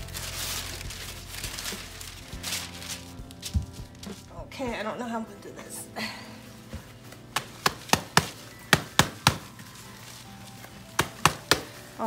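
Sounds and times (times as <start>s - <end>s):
hands knocking on plastic pot: 7.4s - 9.5s, 11.0s - 11.8s.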